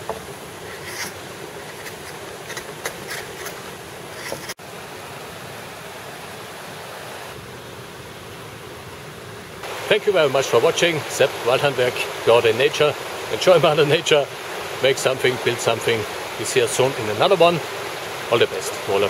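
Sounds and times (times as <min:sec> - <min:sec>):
stream rushing: 0:00.0 - 0:19.0
knife scraping shavings off branch: 0:00.6 - 0:04.6.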